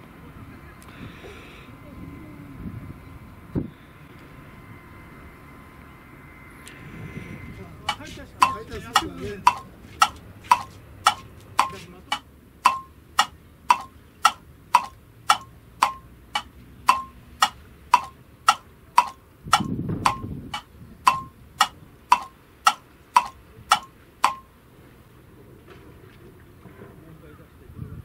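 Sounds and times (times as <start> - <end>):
clock ticking: 7.8 - 24.5.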